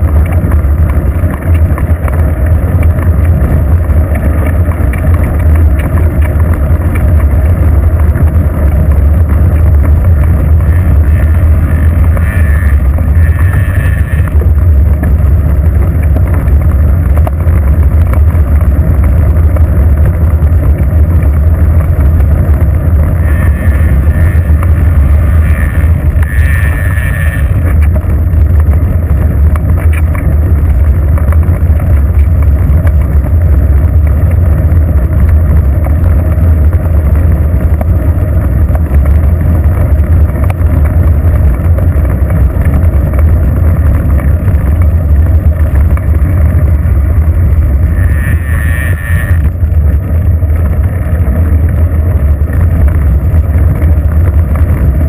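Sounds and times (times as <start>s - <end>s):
tyre noise on asphalt: 0.0s - 55.0s
wind buffeting microphone: 0.0s - 55.0s.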